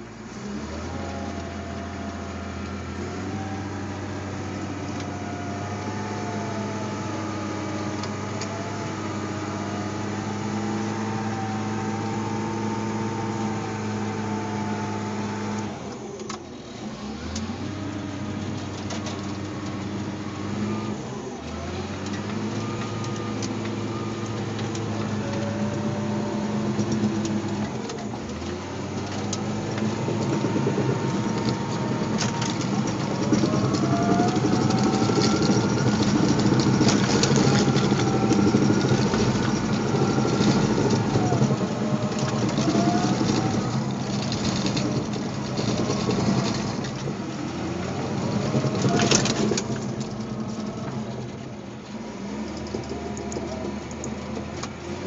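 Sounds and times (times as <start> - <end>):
bulldozer diesel engine running: 0.0 - 55.0
wavering whine: 20.2 - 51.4.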